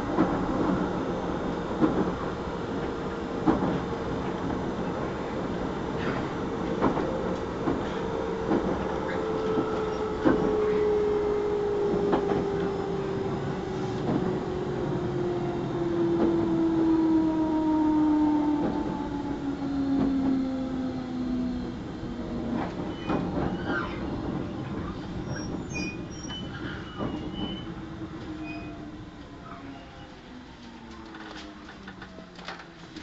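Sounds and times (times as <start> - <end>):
train motor whine: 7.7 - 32.2.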